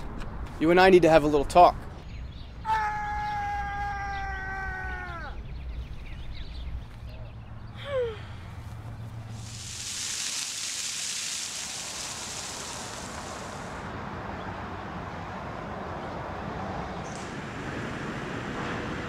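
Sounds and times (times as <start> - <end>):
distant traffic rumble: 3.4 - 19.0
bright hiss: 9.3 - 13.9.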